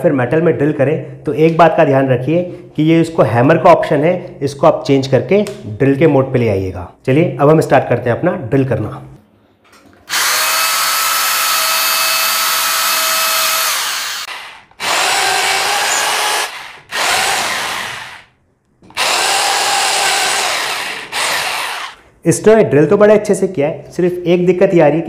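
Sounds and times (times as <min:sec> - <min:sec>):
drill boring into plywood: 0:10.1 - 0:18.3, 0:18.9 - 0:22.0.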